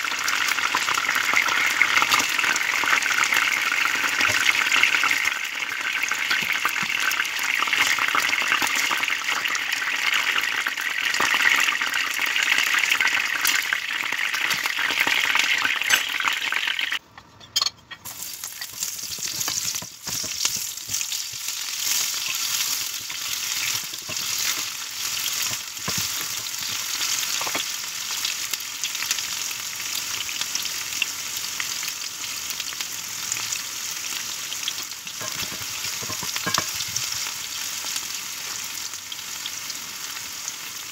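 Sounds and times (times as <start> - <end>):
chicken frying in hot oil: 0.0 - 17.0, 18.1 - 40.9
onions sizzling in oil: 0.0 - 17.0, 18.0 - 40.9
wooden spatula stirring: 18.5 - 26.8.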